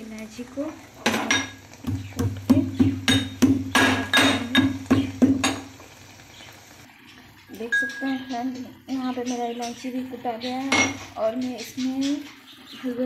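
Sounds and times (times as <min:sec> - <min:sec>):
metal pestle striking metal mortar: 0:02.8 - 0:04.8.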